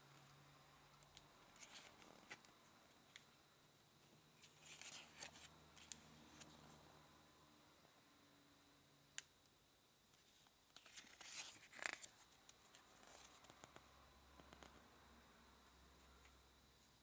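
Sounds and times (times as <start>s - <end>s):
paper pages turning: 1.5s - 2.5s, 4.4s - 6.6s, 10.2s - 13.8s.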